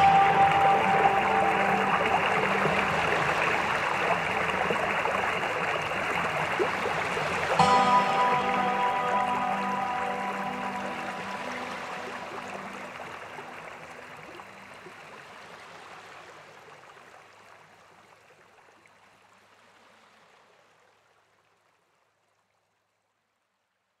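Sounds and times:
background music: 0.0 - 14.1
waterfall rushing into pool: 0.0 - 17.0.

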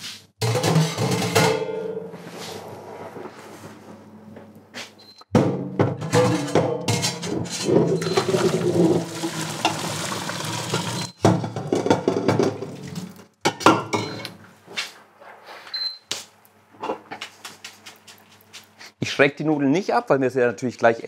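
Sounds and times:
pot and colander knocking: 5.4 - 10.0
water pouring into colander: 8.0 - 11.1.

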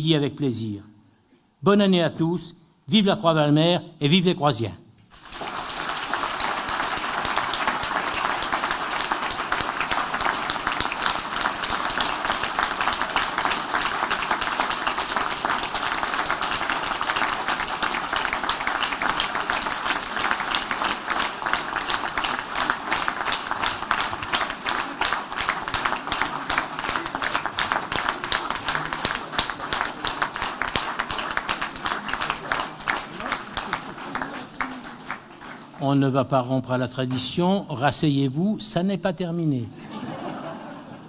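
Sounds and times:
large crowd applauding: 5.1 - 36.2.

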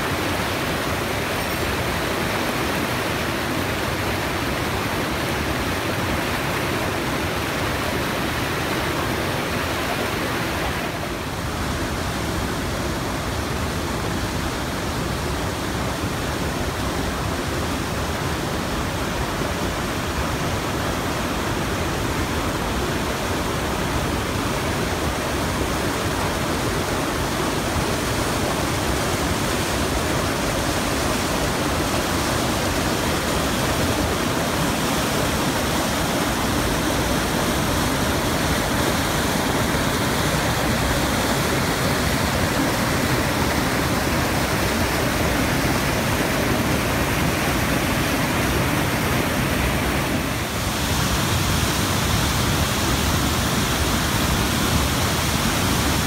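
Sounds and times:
creek cascading over boulders: 0.0 - 56.0
waterfall: 0.0 - 56.0.

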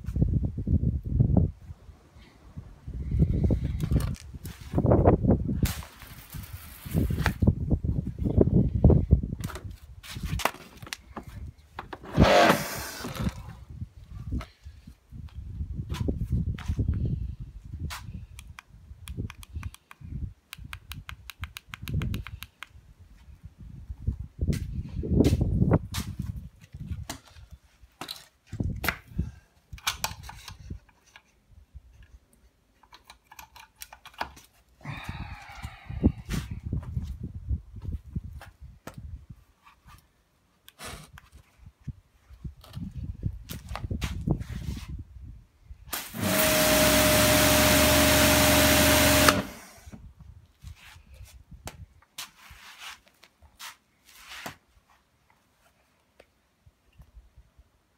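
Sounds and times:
handling knocks and clicks: 32.0 - 34.6
pressure washer spraying: 45.9 - 49.6.

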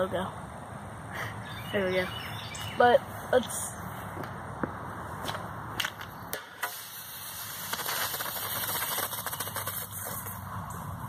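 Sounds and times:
gas cartridge hissing and crackling: 6.3 - 10.4.

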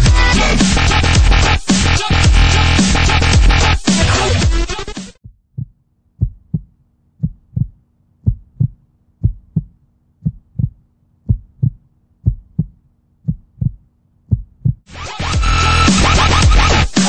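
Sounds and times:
heartbeat thumps: 5.2 - 15.5.

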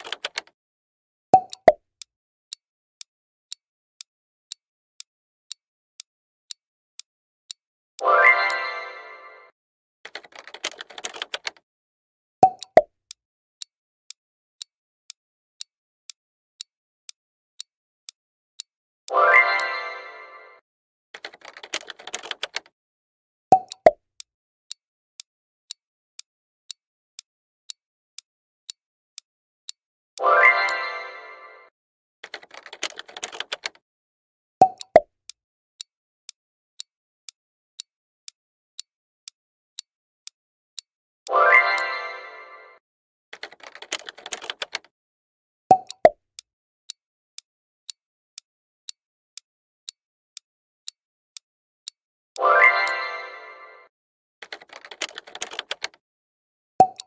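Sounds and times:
clock ticking: 0.0 - 0.6, 1.4 - 2.1, 4.5 - 8.7, 10.1 - 11.6, 12.4 - 16.7, 18.6 - 19.8, 21.2 - 22.7, 23.5 - 30.8, 32.2 - 33.8, 34.6 - 35.9, 37.8 - 42.0, 43.4 - 44.9, 45.7 - 50.0, 51.8 - 53.0, 54.4 - 56.0, 56.8 - 57.0
countdown timer ticking: 1.4 - 2.1, 7.5 - 11.6, 12.4 - 13.7, 19.1 - 20.6, 23.5 - 24.0, 30.2 - 33.8, 34.6 - 35.1, 40.8 - 42.8, 45.7 - 48.0, 51.8 - 53.9, 56.8 - 57.0.

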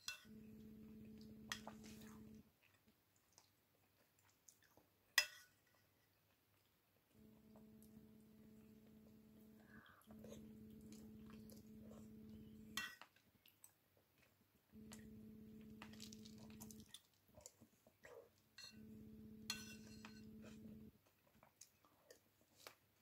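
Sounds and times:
low steady hum: 0.0 - 2.5, 7.1 - 13.0, 14.7 - 17.0, 18.6 - 21.0
soft eating noises: 0.0 - 23.0
metal spoon clinking on ceramic bowl: 18.6 - 18.8, 19.4 - 20.3.

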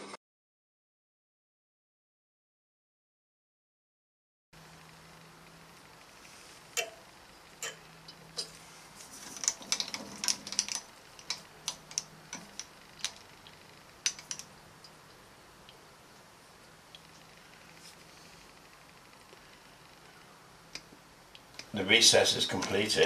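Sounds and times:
faint steady hum: 4.6 - 23.0.

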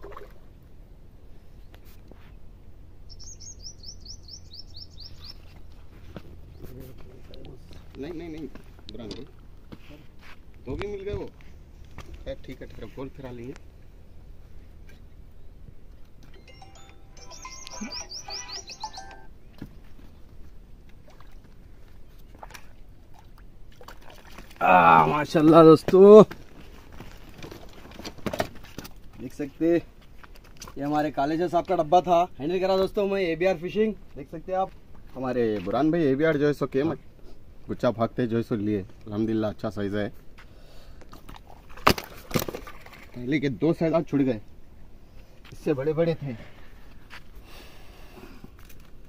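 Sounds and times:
splashes in shallow water: 0.0 - 0.5, 20.9 - 24.9, 41.2 - 43.2
bird singing high notes: 16.4 - 19.3.

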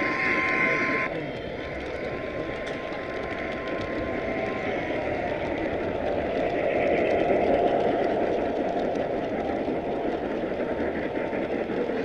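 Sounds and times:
model train wheels rumbling: 0.0 - 12.0.

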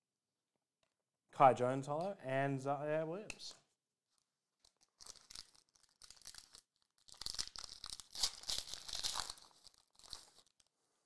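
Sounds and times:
foil wrapper tearing and crinkling: 4.6 - 10.7.

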